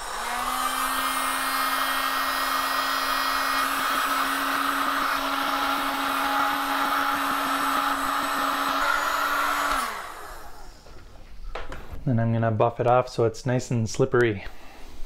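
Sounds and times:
heat gun motor hum and airflow: 0.0 - 11.0.

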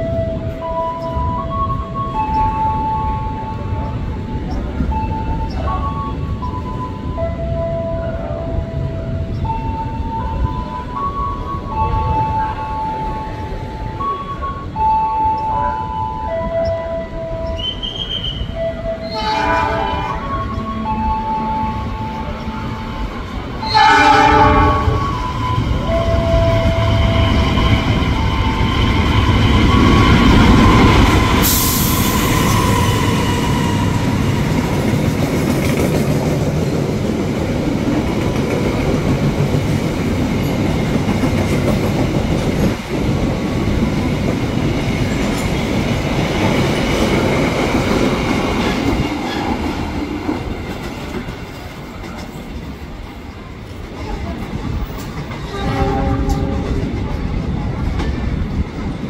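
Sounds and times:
train rumbling: 0.0 - 59.0
locomotive horn: 12.0 - 34.6, 55.5 - 57.0.

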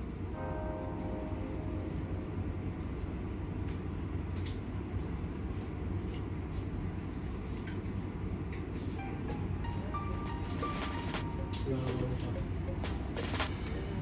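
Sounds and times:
fan humming: 0.0 - 14.0.

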